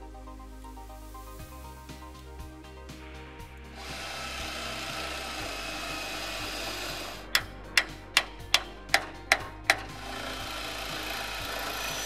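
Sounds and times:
cordless drill drilling metal: 3.7 - 12.0
hand tool clicking on metal: 3.8 - 12.0.

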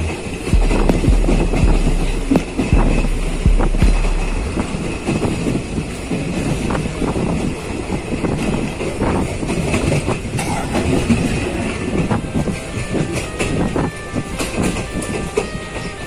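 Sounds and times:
train rumbling on track: 0.0 - 16.0
wheels clattering over rail joints: 4.1 - 16.0.

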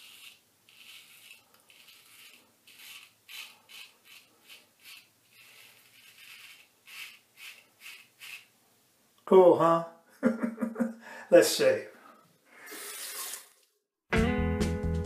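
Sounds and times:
razor scraping stubble: 0.0 - 8.5.

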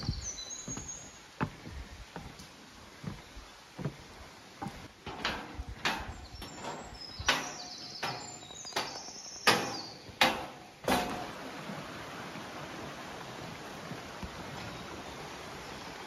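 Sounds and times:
footsteps on rocky trail: 0.0 - 10.2.

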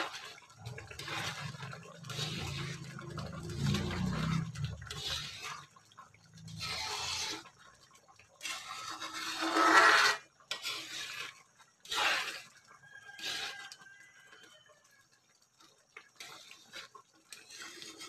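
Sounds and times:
spoon stirring thick porridge in pan: 0.0 - 14.7, 15.4 - 18.0.

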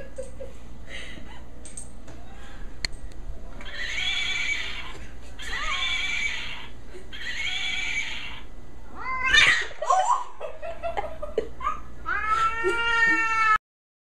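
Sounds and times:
cat yowling: 3.6 - 9.8, 12.0 - 13.6.

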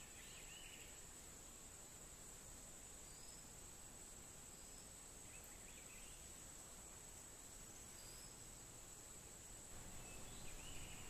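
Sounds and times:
faint bird chirps: 0.0 - 1.2, 3.0 - 3.6, 4.4 - 6.4, 7.7 - 8.7, 9.7 - 11.0.

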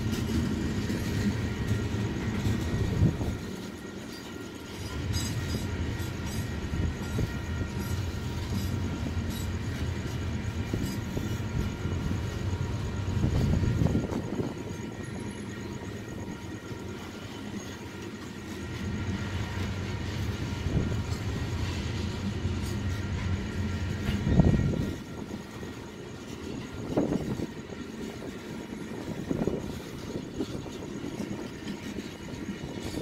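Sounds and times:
train wheels rumbling: 0.0 - 33.0.

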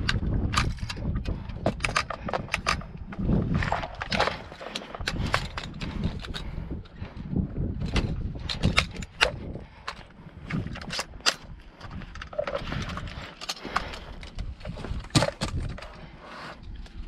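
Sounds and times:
plastic and metal clicks: 0.0 - 3.1, 7.8 - 16.0.

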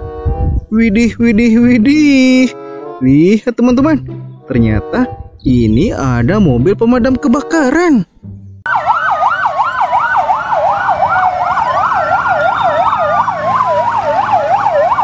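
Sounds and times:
fire engine siren wail: 8.7 - 15.0
fire engine siren yelp: 8.7 - 15.0.

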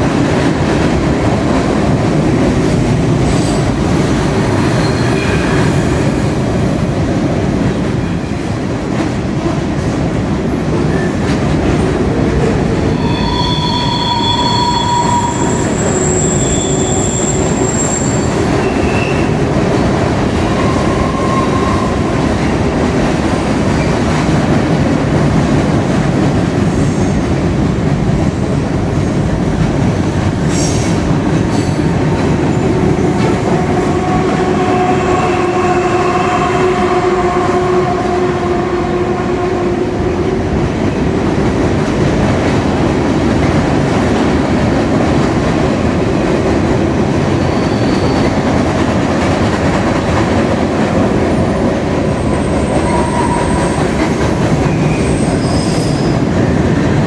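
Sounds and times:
train wheels rumbling on bridge: 0.0 - 57.0
high-pitched wheel squeals: 13.0 - 19.4, 47.4 - 48.4, 52.2 - 56.2.

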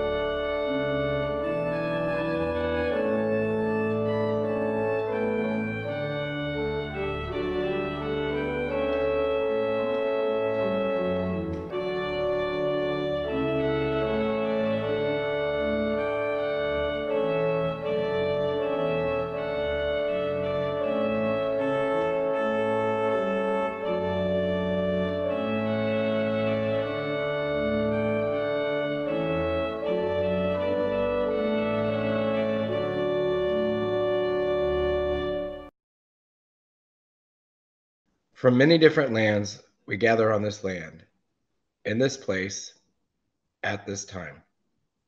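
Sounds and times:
organ playing slow chords: 0.0 - 35.7.

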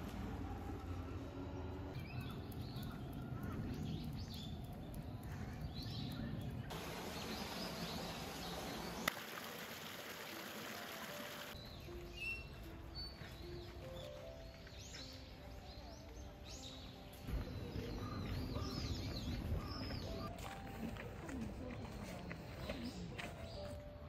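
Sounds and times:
small birds chirping: 1.5 - 9.3, 11.3 - 23.9
flowing water rushing: 6.7 - 11.6.

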